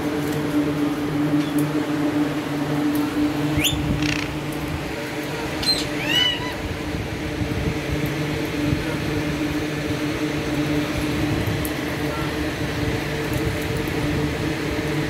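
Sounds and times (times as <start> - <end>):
steady low hum: 0.0 - 15.0
parakeet calls: 3.6 - 4.4, 5.5 - 6.6.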